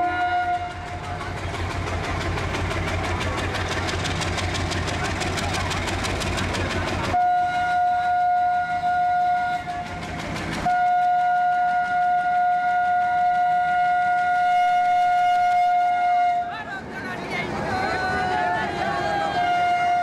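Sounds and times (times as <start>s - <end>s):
locomotive horn blasts: 0.0s - 1.0s, 7.2s - 10.0s, 10.6s - 16.5s, 19.3s - 20.0s
diesel engine clattering: 0.2s - 7.2s, 8.3s - 11.0s.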